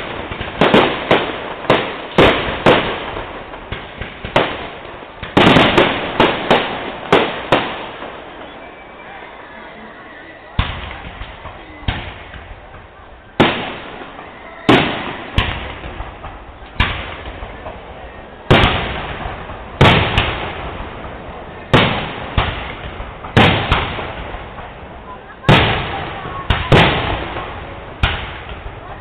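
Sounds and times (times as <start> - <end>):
firework shells bursting: 0.0 - 8.8.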